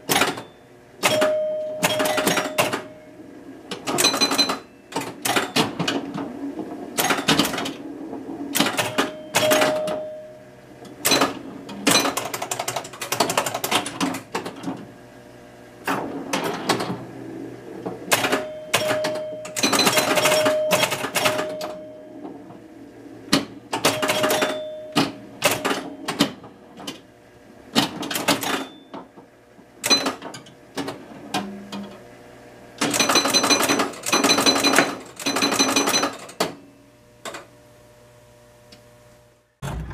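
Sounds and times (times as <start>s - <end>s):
pinball machine clicking and clatter: 0.0s - 14.9s, 15.8s - 27.1s, 27.7s - 32.0s, 32.8s - 36.6s, 39.6s - 39.9s
short ringing tones: 0.4s - 3.2s.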